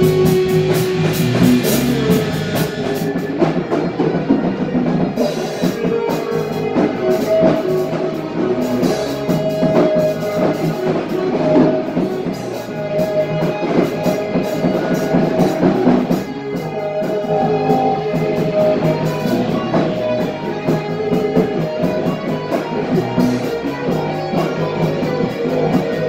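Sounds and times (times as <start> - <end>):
drum kit beat: 0.0 - 26.0
electric guitar: 0.0 - 26.0.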